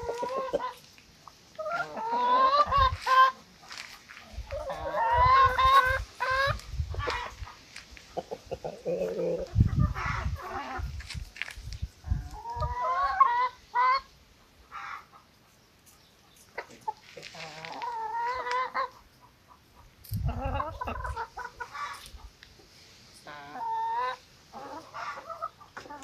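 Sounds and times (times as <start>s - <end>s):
chickens clucking: 0.0s - 26.0s.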